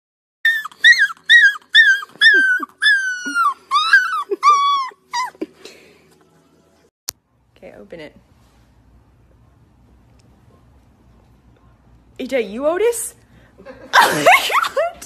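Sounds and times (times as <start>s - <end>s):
puppy howling: 0.5s - 5.4s.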